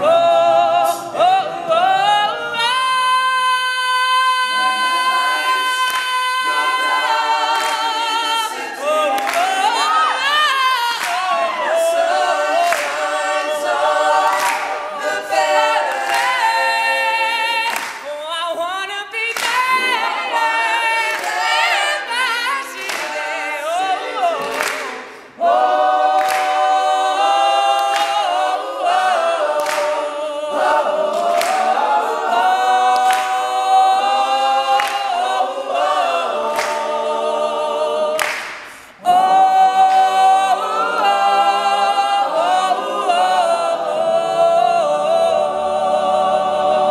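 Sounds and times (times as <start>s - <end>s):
male a cappella group singing: 0.0s - 46.9s
hand claps: 7.5s - 8.0s, 9.1s - 9.7s, 11.0s - 11.4s, 12.6s - 13.1s, 14.2s - 14.9s, 15.9s - 16.5s, 17.7s - 18.1s, 19.3s - 20.0s, 21.0s - 21.5s, 22.8s - 23.2s, 24.4s - 25.2s, 26.1s - 26.7s, 27.8s - 28.3s, 29.6s - 30.1s, 31.1s - 31.8s, 32.9s - 33.4s, 34.8s - 35.1s, 36.5s - 37.0s, 38.2s - 39.0s.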